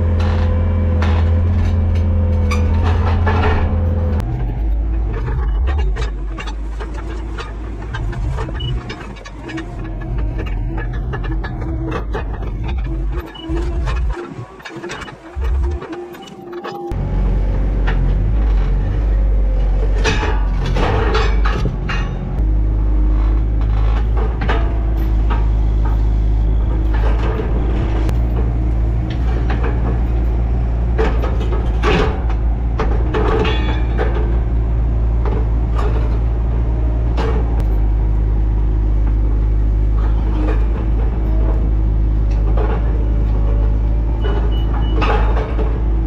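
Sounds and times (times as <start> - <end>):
skid steer engine running: 0.0 - 46.0.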